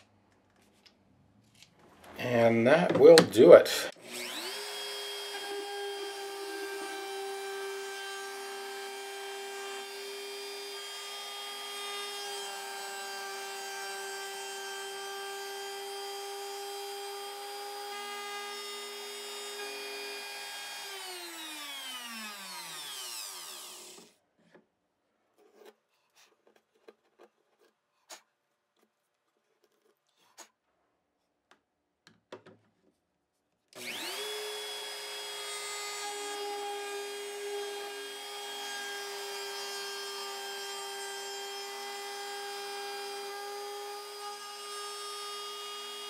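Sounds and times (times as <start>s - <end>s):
trim router high whine: 4.0s - 13.8s, 14.9s - 24.1s, 33.8s - 46.0s.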